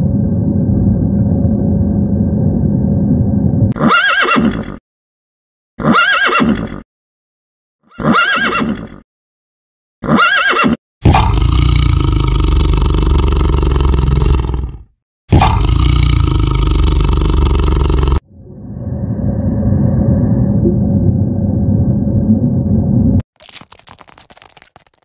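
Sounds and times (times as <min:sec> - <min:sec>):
horse whinnying: 0:03.8 - 0:04.8, 0:05.8 - 0:06.8, 0:07.9 - 0:09.0, 0:10.0 - 0:11.3.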